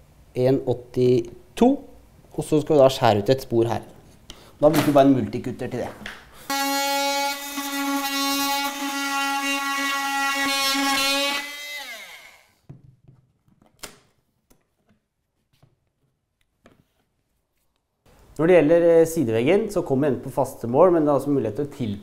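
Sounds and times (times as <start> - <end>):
multi-tool buzzing: 6.5 - 12.6.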